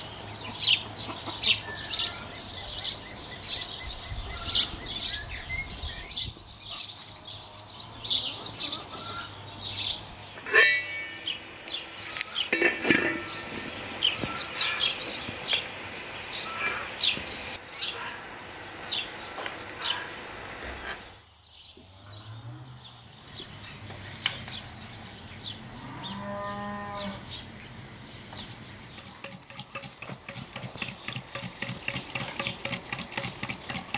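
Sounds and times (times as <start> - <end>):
small birds chirping: 0.0 - 10.4, 27.0 - 33.9
cow mooing: 25.8 - 27.3.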